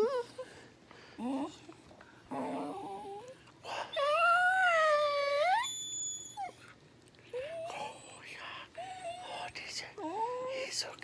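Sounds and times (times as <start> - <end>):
dog howling: 2.3 - 6.6.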